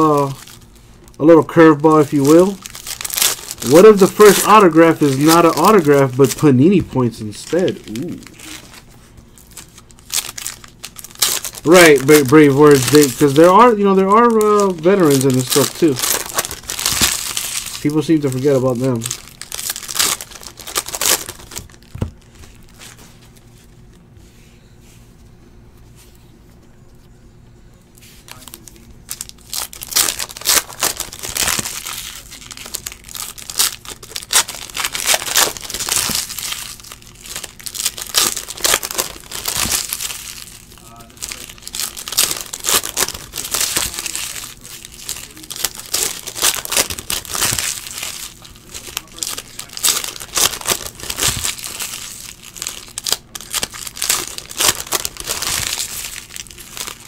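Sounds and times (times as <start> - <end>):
foil wrappers tearing and crinkling: 0.0 - 23.5, 28.2 - 57.0.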